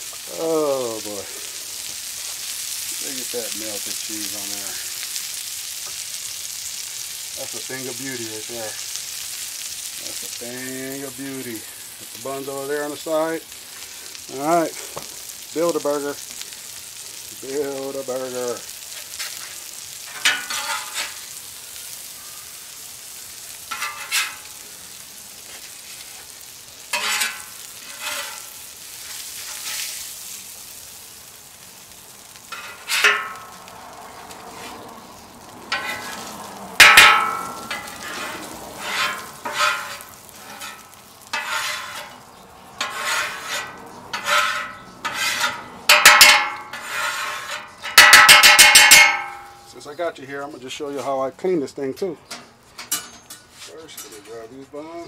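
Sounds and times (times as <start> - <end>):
grease sizzling: 0.0 - 55.0
metal spatula scraping griddle: 17.5 - 21.4, 23.7 - 24.6, 25.5 - 30.3, 32.4 - 33.6, 34.4 - 34.9, 35.7 - 49.5
spatula clanking: 20.1 - 21.2, 23.7 - 24.5, 26.9 - 29.9, 32.5 - 33.5, 35.7 - 36.2, 36.8 - 42.2, 42.8 - 49.6.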